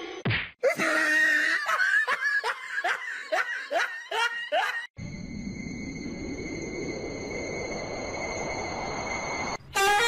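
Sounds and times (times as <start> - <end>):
person laughing: 0.7 - 4.9
steady high whine: 5.0 - 9.6.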